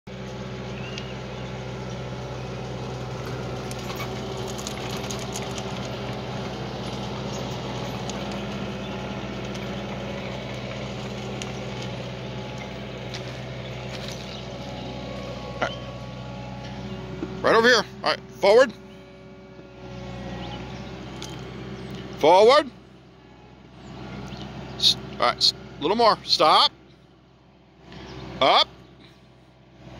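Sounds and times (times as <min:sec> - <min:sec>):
loader engine running: 0:00.1 - 0:29.9.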